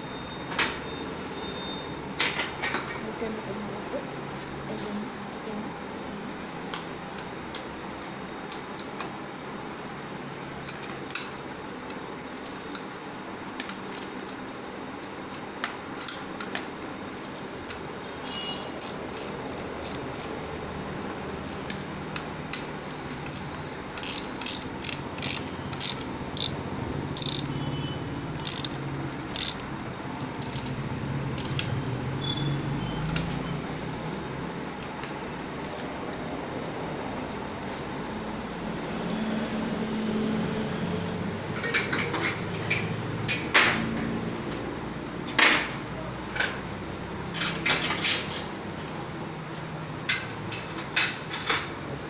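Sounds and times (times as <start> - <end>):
ratchet-like clicks: 18.3 - 20.4, 24.0 - 26.6, 27.2 - 27.5, 28.4 - 29.6, 30.4 - 30.8, 31.4 - 31.7.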